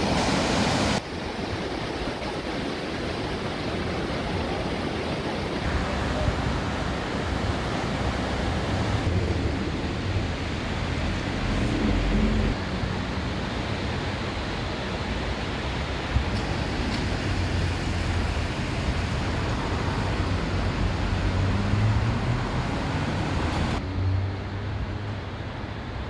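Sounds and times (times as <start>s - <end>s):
cars driving along road: 5.6s - 26.0s.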